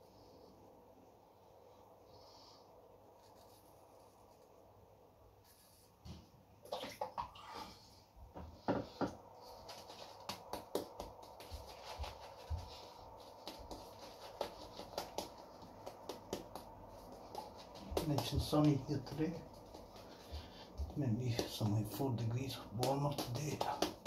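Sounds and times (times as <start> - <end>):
shaving brush strokes: 9.4 - 22.0.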